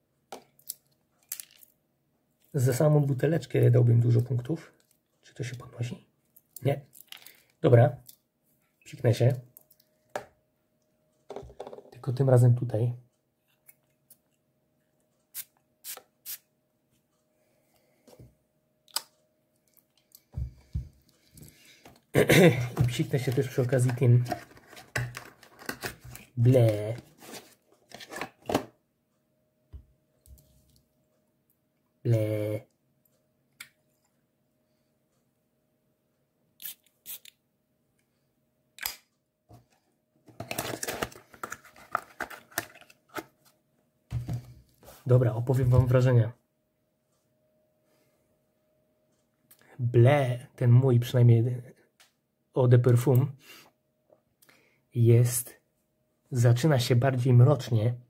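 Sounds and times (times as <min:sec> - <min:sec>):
perfume atomiser spraying: 0:15.3 - 0:16.4, 0:36.6 - 0:37.3
clicking and rustling cardboard: 0:22.7 - 0:26.2, 0:40.3 - 0:43.4.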